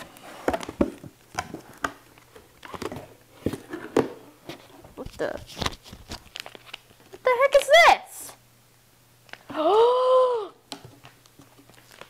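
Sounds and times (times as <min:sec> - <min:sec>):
packaging rustling: 0:00.0 - 0:07.2, 0:11.0 - 0:12.0.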